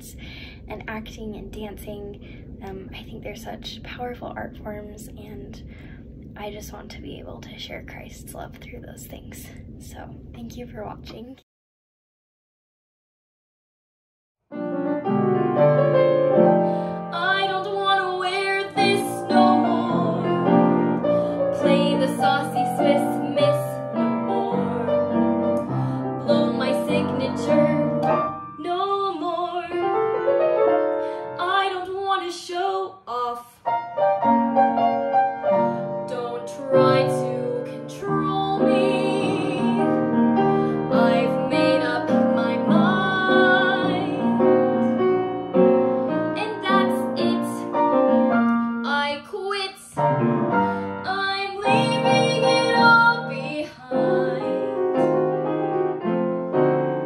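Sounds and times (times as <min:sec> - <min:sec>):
piano accompaniment: 0:14.5 - 0:57.0
woman singing: 0:16.8 - 0:30.2, 0:31.0 - 0:33.8, 0:35.6 - 0:44.6, 0:46.3 - 0:47.8, 0:48.8 - 0:50.0, 0:50.6 - 0:55.1.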